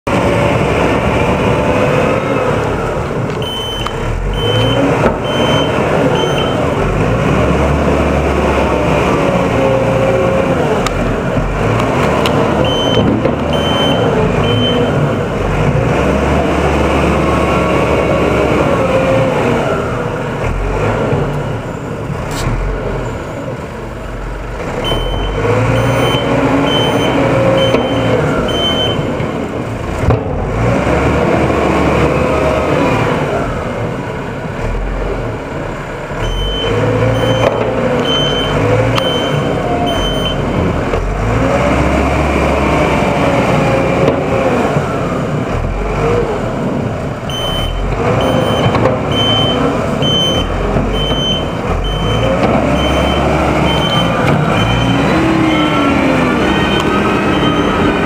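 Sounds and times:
diesel engine revving: 0:00.0 - 0:58.0
backup alarm beeping: 0:03.4 - 0:06.6, 0:12.6 - 0:14.9, 0:24.8 - 0:29.1, 0:36.2 - 0:40.4, 0:47.3 - 0:58.0.

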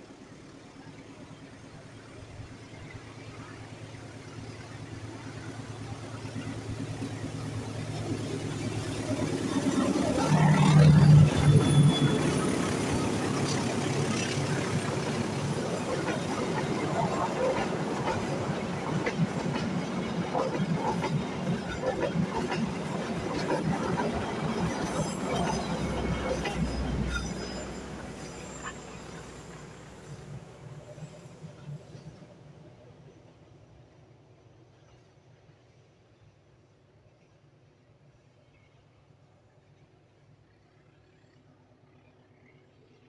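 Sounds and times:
locomotive engine hum: 0:00.0 - 0:34.4.

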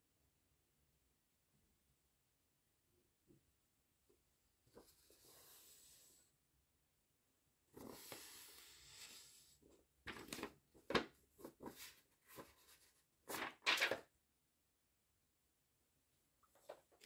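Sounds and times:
paper rustling and crinkling: 0:07.8 - 0:09.1, 0:10.1 - 0:14.1.

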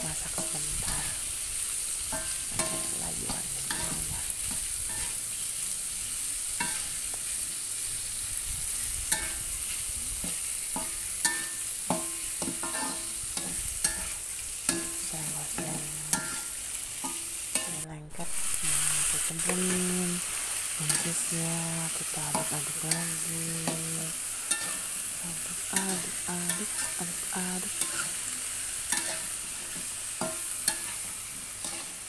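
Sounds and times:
food sizzling in a wok: 0:00.0 - 0:32.0
metal spatula scraping a wok: 0:01.8 - 0:05.4, 0:09.1 - 0:09.7, 0:10.8 - 0:15.0, 0:15.6 - 0:21.3, 0:22.1 - 0:32.0.

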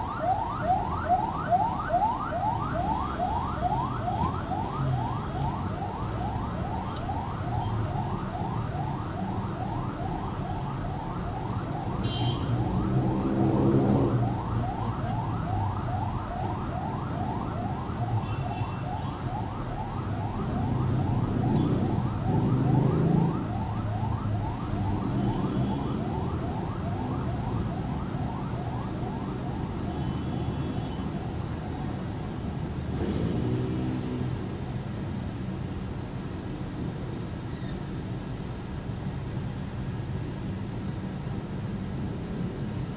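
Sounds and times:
ambulance siren yelping: 0:00.0 - 0:31.9
traffic rumble: 0:00.0 - 0:42.9.

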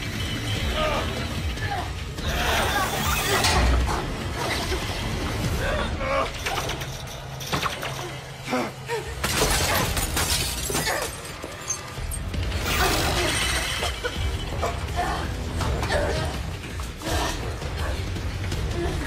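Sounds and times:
glass shattering: 0:09.2 - 0:14.8.

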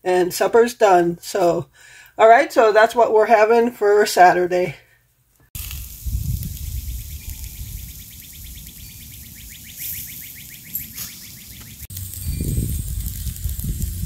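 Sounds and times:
wind rumble on microphone: 0:05.6 - 0:09.8, 0:11.7 - 0:14.0
rapid chirping trill: 0:06.6 - 0:12.6.

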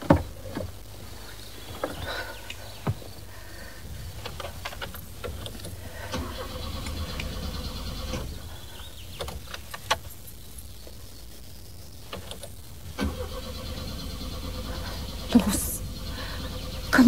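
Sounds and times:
car starter motor cranking: 0:04.2 - 0:10.0, 0:12.2 - 0:17.0.

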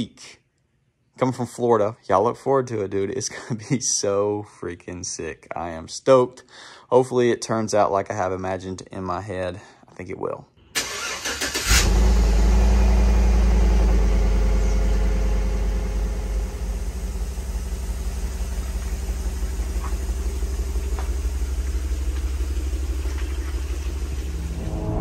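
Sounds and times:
car engine starting and idling: 0:10.6 - 0:25.0.

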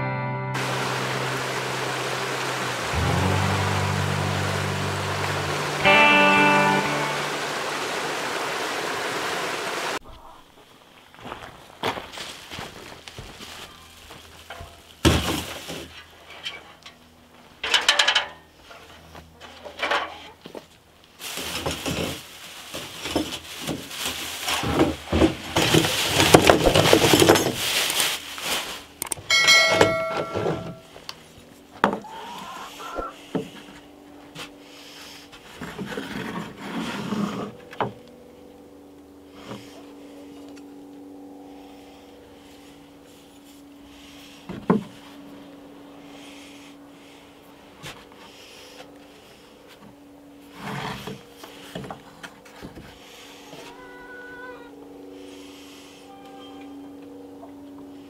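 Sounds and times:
steady low hum: 0:00.0 - 0:11.8, 0:28.2 - 0:58.0
plastic bags crinkling: 0:21.2 - 0:24.7, 0:25.4 - 0:29.0
short bright chime: 0:29.3 - 0:30.9.

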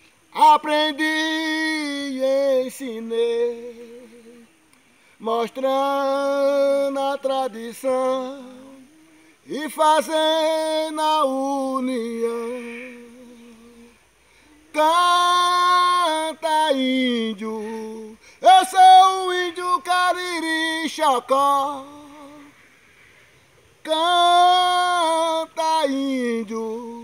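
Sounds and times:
short breaths: 0:04.7 - 0:05.2, 0:08.9 - 0:09.5, 0:13.9 - 0:14.7, 0:18.2 - 0:18.4, 0:22.4 - 0:23.8.

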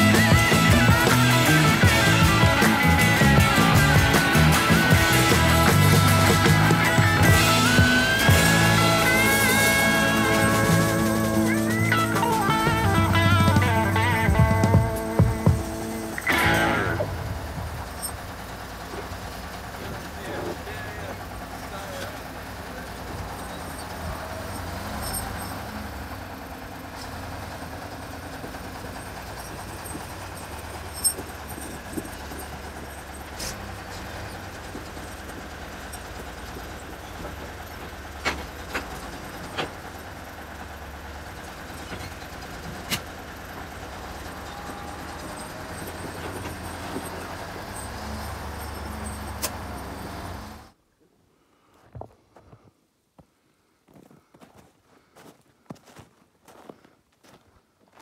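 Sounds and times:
wheel loader diesel engine: 0:00.0 - 0:50.8
sharp metal clanks: 0:28.4 - 0:39.9, 0:44.0 - 0:50.5.

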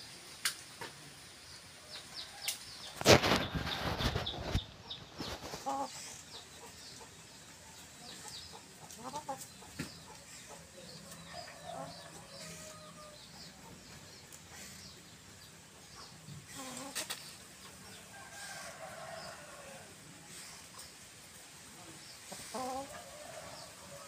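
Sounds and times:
hens clucking: 0:02.0 - 0:18.0, 0:21.8 - 0:24.0.

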